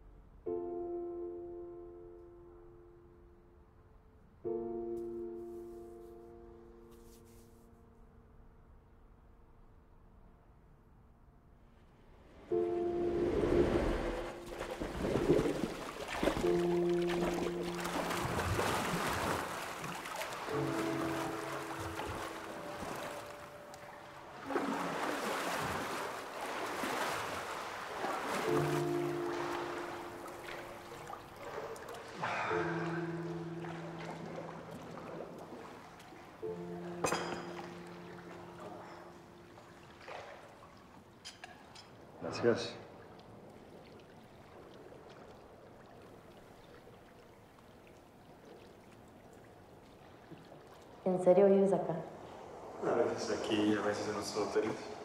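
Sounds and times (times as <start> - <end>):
pool water splashing: 12.2 - 55.0.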